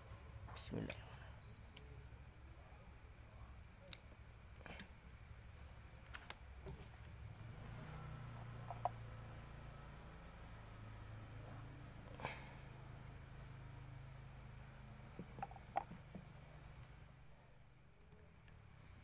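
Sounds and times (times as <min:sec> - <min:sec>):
night insects chirring: 0:00.0 - 0:19.0.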